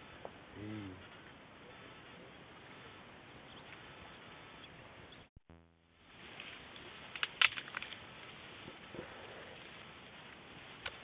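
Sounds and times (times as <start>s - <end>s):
steady outdoor hiss: 0.0s - 11.0s
twigs snapping and crackling: 7.1s - 8.0s.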